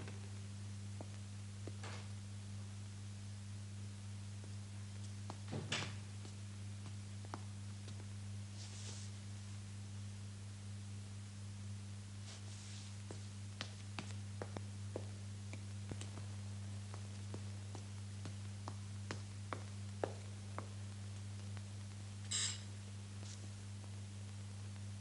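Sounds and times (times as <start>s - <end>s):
electric doorbell buzz: 22.3s - 22.6s.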